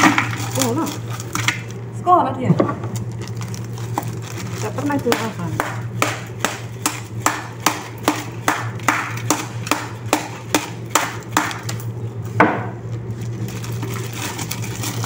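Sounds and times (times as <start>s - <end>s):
low steady hum: 0.0s - 15.0s
rhythmic sharp knocking: 5.0s - 11.6s.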